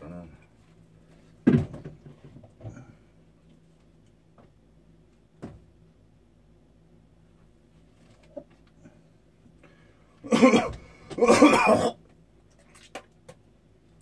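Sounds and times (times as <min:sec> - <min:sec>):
man coughing: 0:10.2 - 0:12.0.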